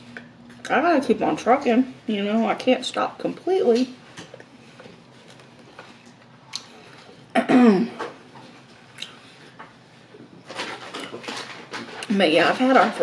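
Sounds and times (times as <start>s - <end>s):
person chewing: 5.2s - 7.1s.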